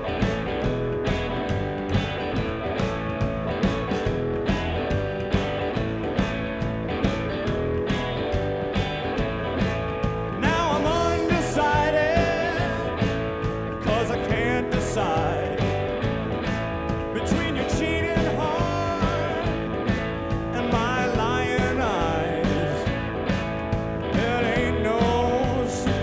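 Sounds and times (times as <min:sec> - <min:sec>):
person singing over instruments: 0:10.4 - 0:13.2, 0:13.8 - 0:15.8, 0:17.0 - 0:19.8, 0:20.4 - 0:23.0, 0:24.1 - 0:26.0.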